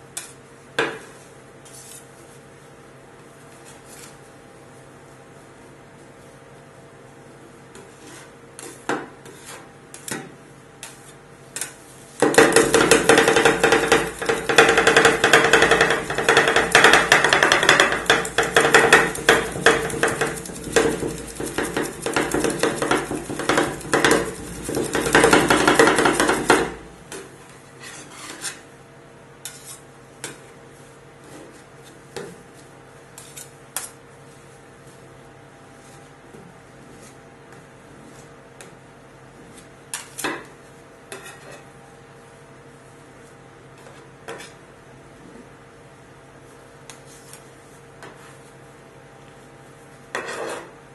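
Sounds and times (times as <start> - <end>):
metal spatulas scraping metal: 27.8 - 28.6, 29.4 - 29.8, 50.1 - 50.7.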